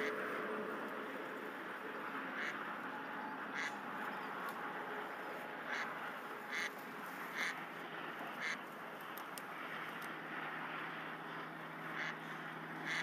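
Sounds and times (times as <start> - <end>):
steady background hiss: 0.0 - 13.0
duck quacking: 2.3 - 2.6, 3.5 - 3.8, 5.6 - 7.6, 8.4 - 8.6, 11.9 - 12.2.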